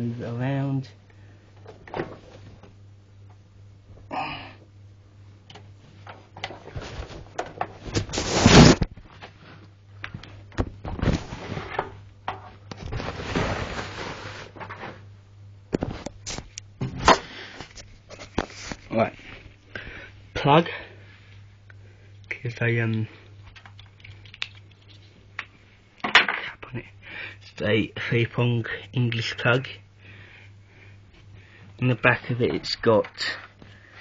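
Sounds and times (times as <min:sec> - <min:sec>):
faint low hum: 0:00.0 - 0:34.0
packaging rustling and scraping: 0:06.6 - 0:08.9, 0:12.8 - 0:15.0.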